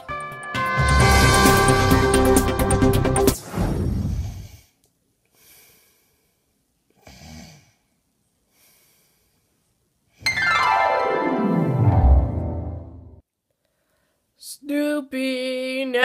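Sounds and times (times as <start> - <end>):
music: 0.0 - 3.5, 10.3 - 13.2
faint breathy snores: 7.0 - 7.9.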